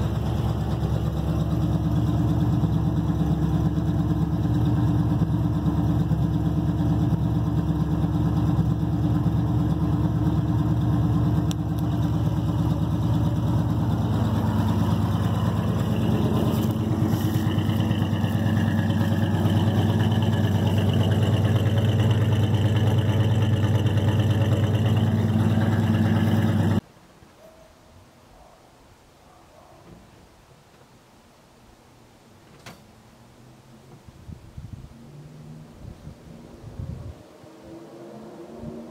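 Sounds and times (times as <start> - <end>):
truck engine idling: 0.0 - 26.8.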